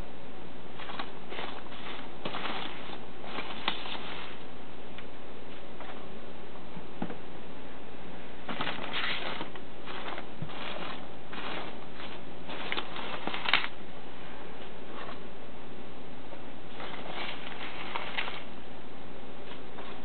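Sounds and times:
packing peanuts rustling in box: 0.8 - 4.4, 8.5 - 13.8, 16.7 - 18.5, 19.5 - 20.0.

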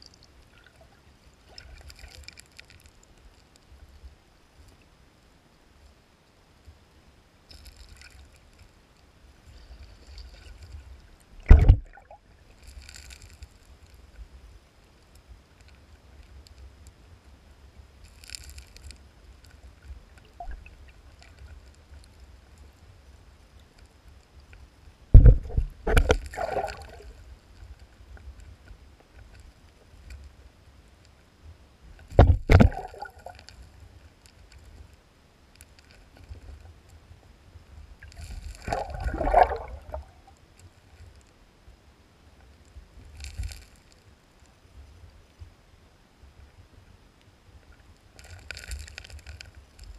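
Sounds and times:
gravel rustling underwater: 0.0 - 6.0, 7.4 - 41.5, 42.2 - 45.6, 46.2 - 49.9
underwater stream rumble: 9.3 - 12.9, 25.0 - 29.0, 31.9 - 34.0, 37.3 - 40.4.

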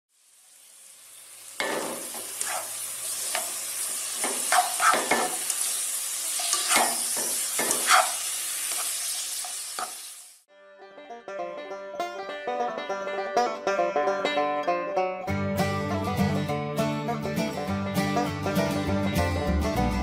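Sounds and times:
food sizzling in butter: 0.1 - 10.5
spatula scraping and knocking pan: 1.6 - 5.7, 6.3 - 10.0.

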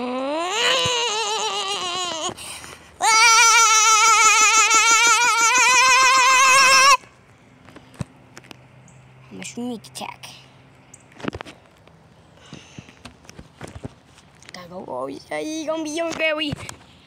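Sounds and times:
child yelling: 0.0 - 2.3, 3.0 - 7.0.

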